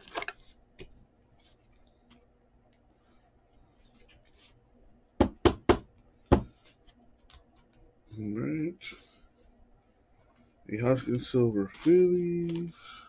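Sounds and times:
trading cards rustling: 10.8 - 13.0.

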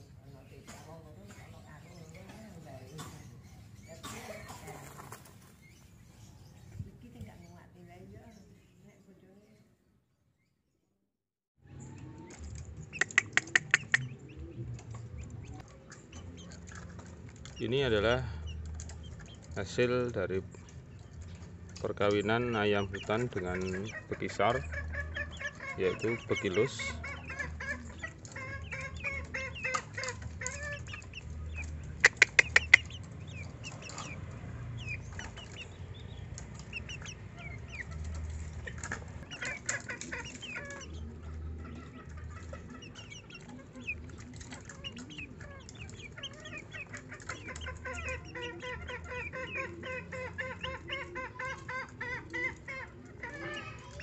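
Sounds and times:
chicks cheeping: 0.0 - 8.8, 11.6 - 54.0
sharp clicks: 12.5 - 14.1, 29.7 - 40.4.

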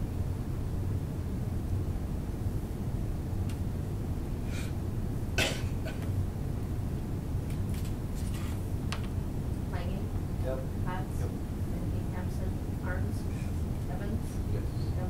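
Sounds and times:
low room hum: 0.0 - 15.0
cough: 5.4 - 6.1.

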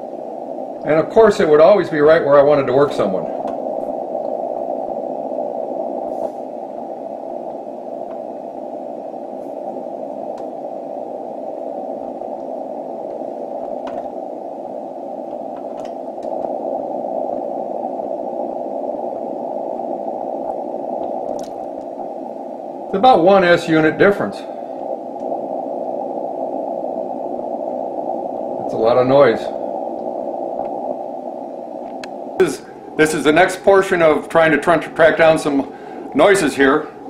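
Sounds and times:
radio receiver noise hiss: 0.0 - 37.0
faint clicks: 7.3 - 8.4, 9.4 - 11.1, 11.9 - 16.6, 19.9 - 22.3, 24.8 - 25.4, 29.9 - 32.7.

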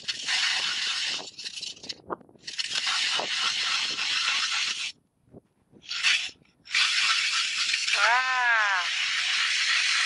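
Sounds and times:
ice auger scraping through ice: 0.0 - 4.9, 5.8 - 10.0.

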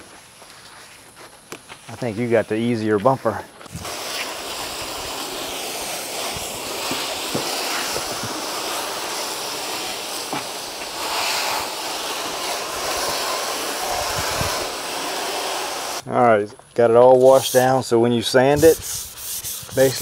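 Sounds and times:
hose nozzle spraying water: 3.6 - 16.0, 18.6 - 20.0.

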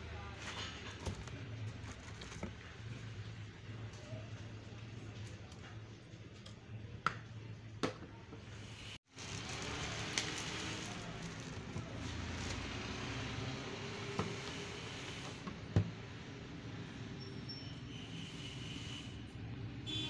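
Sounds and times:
plastic packaging crinkling: 9.1 - 12.7.

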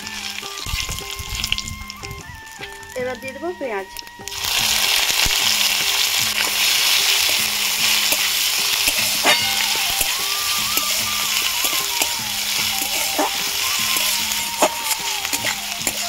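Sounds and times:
onion sizzling in hot oil: 0.0 - 16.0
metal spatula stirring and scraping: 4.4 - 16.0.

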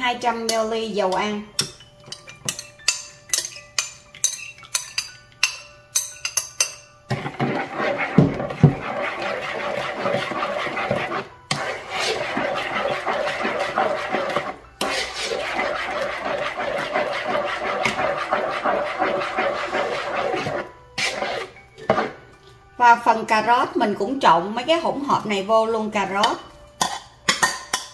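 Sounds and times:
utensil scraping a mixing bowl: 7.1 - 22.2.

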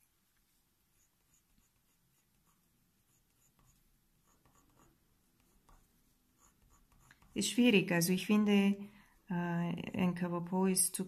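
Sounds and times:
pencil scratching on paper: 0.8 - 8.1.

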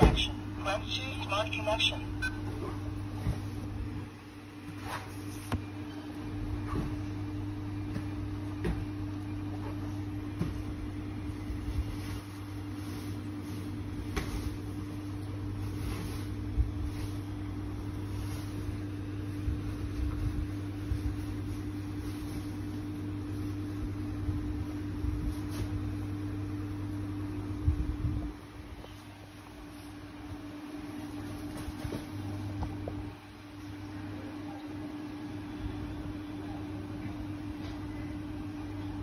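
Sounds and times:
low mechanical hum: 0.0 - 39.0.

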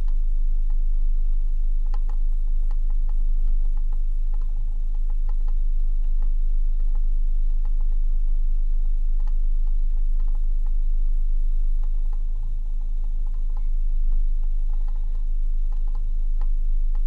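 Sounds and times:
off-road vehicle idling: 0.0 - 17.0.

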